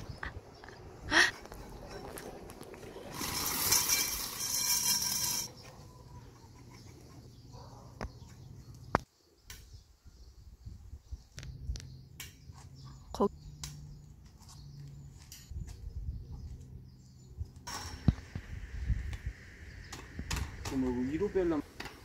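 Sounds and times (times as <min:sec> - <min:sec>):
loud metal scraping: 0:02.9 - 0:06.8.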